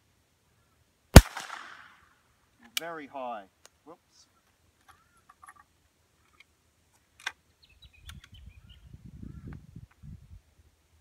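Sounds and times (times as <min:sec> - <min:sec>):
bird chirps: 0:07.6 - 0:09.5.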